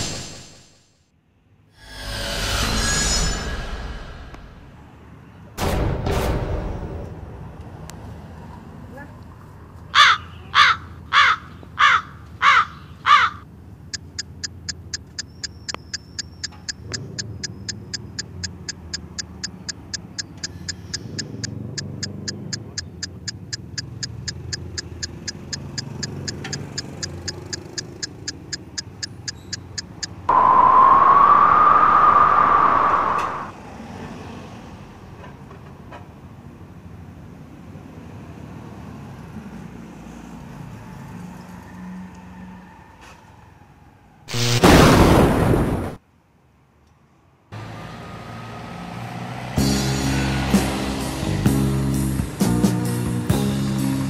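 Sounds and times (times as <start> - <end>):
crow cawing: 9.9 - 13.4
fast even ticking: 13.9 - 30.3
loud steady-tone blare: 30.3 - 33.5.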